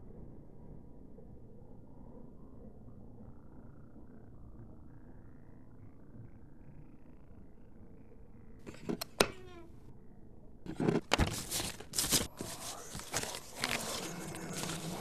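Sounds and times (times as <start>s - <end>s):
faint hum: 0.0s - 15.0s
paper sheets rustling and flapping: 10.7s - 15.0s.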